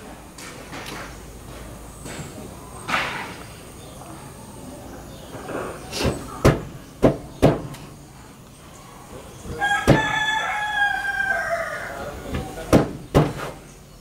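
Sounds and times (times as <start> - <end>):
rooster crowing: 9.5 - 12.7.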